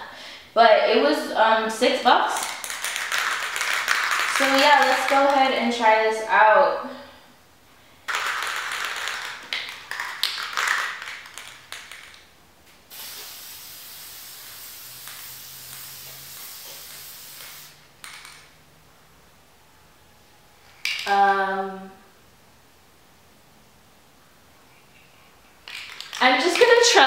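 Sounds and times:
aerosol can rattling: 0:02.4 - 0:05.4, 0:08.1 - 0:12.2, 0:14.5 - 0:18.5, 0:25.6 - 0:26.8
aerosol spray hiss: 0:12.9 - 0:17.9.

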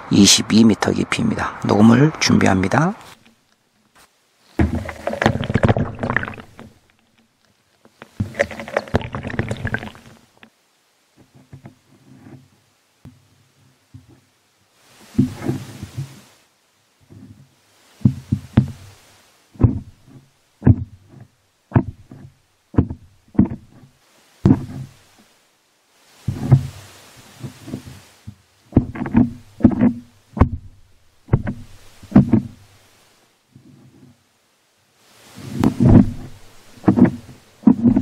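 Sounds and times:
dull knocks and thuds: 0:04.6 - 0:06.8, 0:15.1 - 0:16.2, 0:18.0 - 0:18.9, 0:19.6 - 0:25.0, 0:26.3 - 0:26.8, 0:27.4 - 0:32.6, 0:35.5 - 0:38.0.

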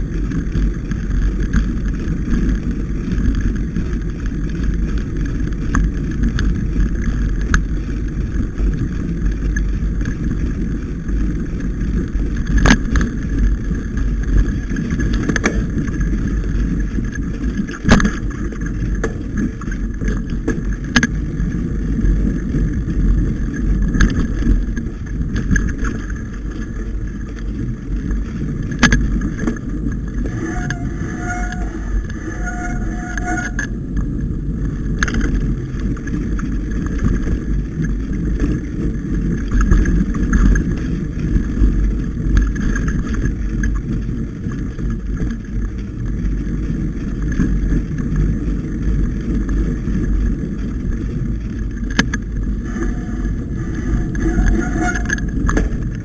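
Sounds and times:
bike knocking over bumps: 0:00.0 - 0:30.8
bike tyres rumbling on trail: 0:00.0 - 0:56.0.

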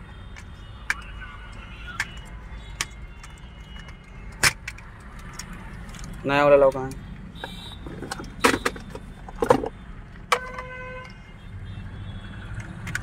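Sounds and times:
plastic knocks and rattles: 0:07.8 - 0:10.7.

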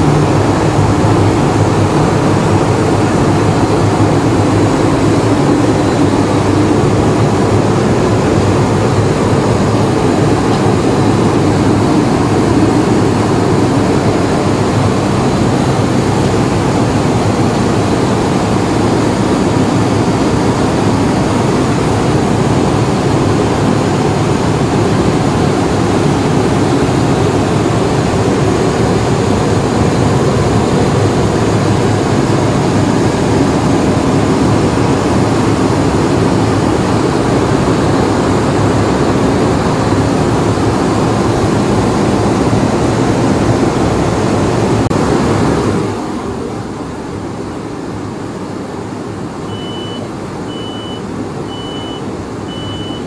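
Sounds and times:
airliner cabin roar: 0:00.0 - 0:53.0
short high beeps: 0:49.5 - 0:53.0.

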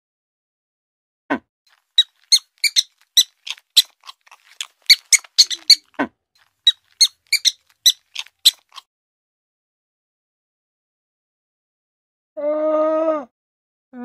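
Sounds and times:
rabbit crunching carrot: 0:01.7 - 0:08.8.

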